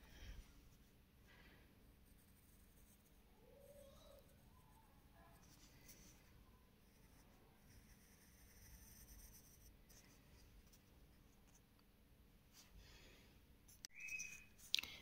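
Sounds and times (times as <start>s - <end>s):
pencil scratching on paper: 3.7s - 10.8s.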